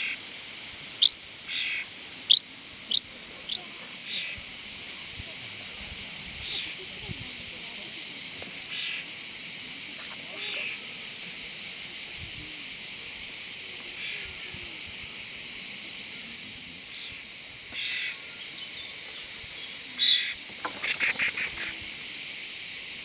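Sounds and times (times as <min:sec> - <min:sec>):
high insect shrilling: 0:16.9 - 0:23.0
short calls: 0:20.0 - 0:21.8.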